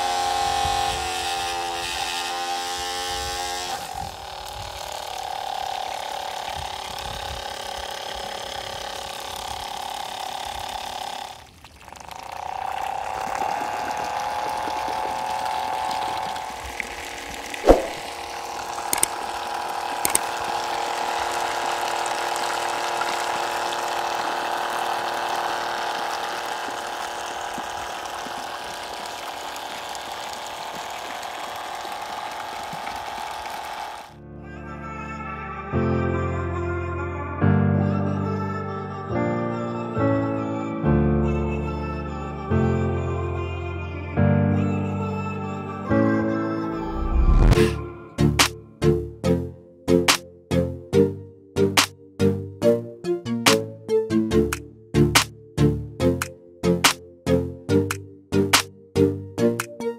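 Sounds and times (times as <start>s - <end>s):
small electric motor whining: 0.0s - 34.2s, 46.7s - 48.5s.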